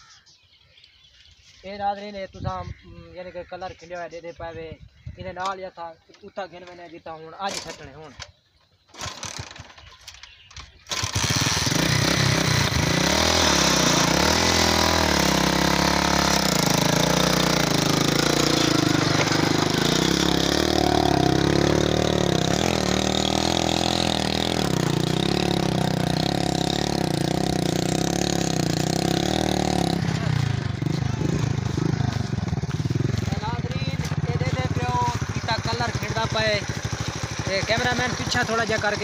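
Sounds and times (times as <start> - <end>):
small petrol engine running: 8.9 - 39.0.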